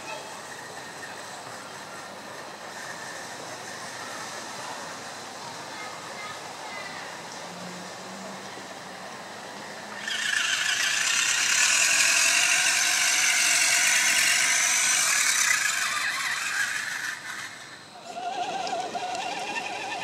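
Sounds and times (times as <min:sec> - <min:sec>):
rc car motor whining: 0:00.0 - 0:05.0, 0:09.8 - 0:20.0.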